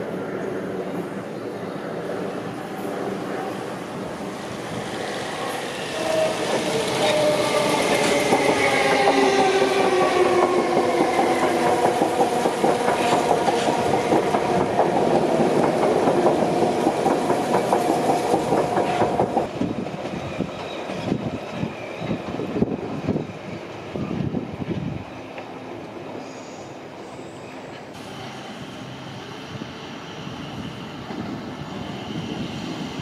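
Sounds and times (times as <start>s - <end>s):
distant rail noise: 0.0s - 33.0s
train wheels rumbling and clattering: 2.1s - 25.6s.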